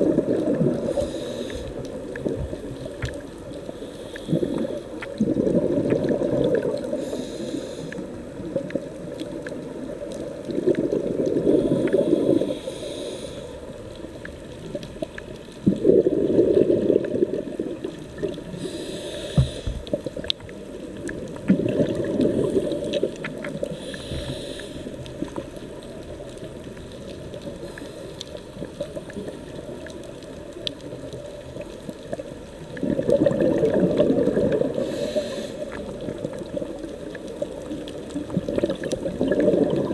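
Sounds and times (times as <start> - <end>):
exhaled bubbles underwater: 0.0 - 12.9, 13.6 - 39.9
regulator inhalation hiss: 0.9 - 1.9, 6.9 - 8.1, 11.5 - 13.6, 18.5 - 19.8, 23.7 - 25.0, 34.8 - 35.9.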